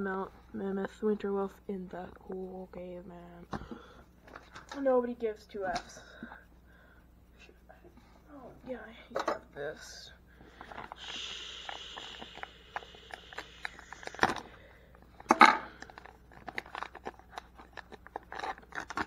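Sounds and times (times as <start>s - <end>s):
plastic cracks: 15.2s - 19.0s
plastic wrapper crinkling: 15.7s - 19.0s.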